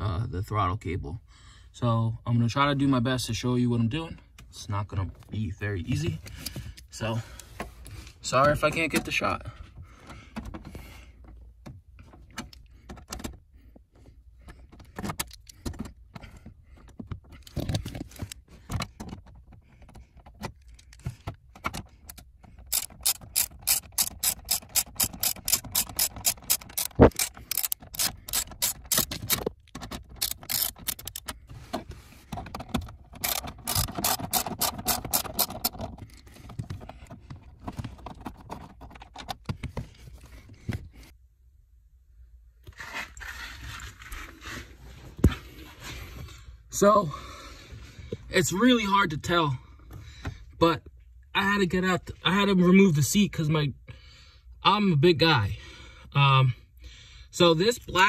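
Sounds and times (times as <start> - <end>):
socket ratchet clicking: 21.6 - 31.4, 32.8 - 36.0.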